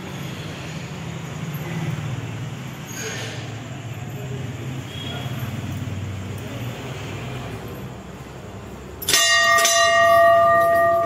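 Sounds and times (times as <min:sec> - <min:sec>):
brass bell struck and ringing: 0:09.1 - 0:11.0.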